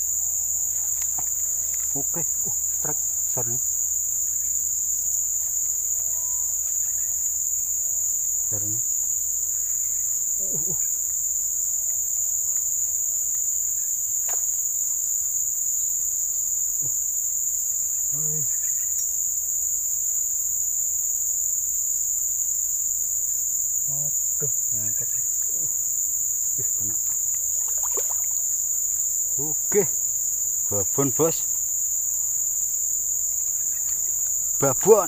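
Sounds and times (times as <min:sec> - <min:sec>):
high-pitched insect chorus: 0:00.0 - 0:35.0.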